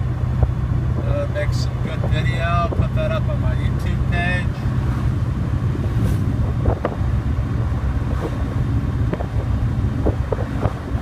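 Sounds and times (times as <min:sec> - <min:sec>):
car engine rumbling at cruise: 0:00.0 - 0:11.0
wind noise on microphone: 0:04.8 - 0:11.0.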